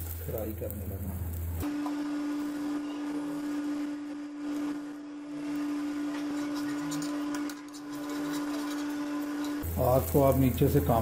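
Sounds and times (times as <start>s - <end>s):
patties sizzling in ghee: 0.0s - 11.0s
steady hum: 0.8s - 10.9s.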